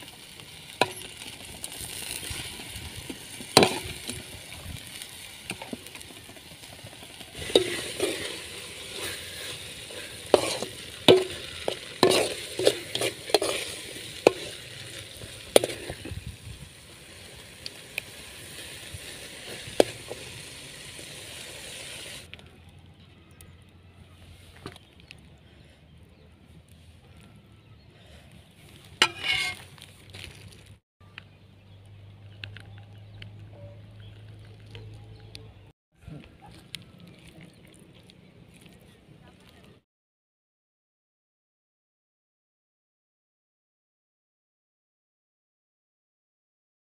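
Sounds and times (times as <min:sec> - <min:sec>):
frying sizzle: 0:00.0 - 0:22.3
spoon scraping metal pan: 0:07.4 - 0:16.1, 0:29.0 - 0:29.7.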